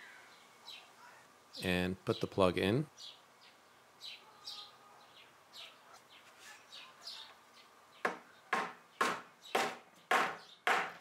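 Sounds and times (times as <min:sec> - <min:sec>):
birds chirping: 0:00.0 - 0:11.0
small hammer tapping wood: 0:08.0 - 0:11.0.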